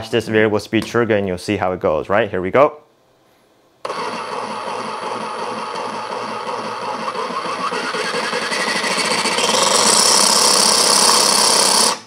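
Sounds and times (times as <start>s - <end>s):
reciprocating saw running: 3.9s - 12.0s.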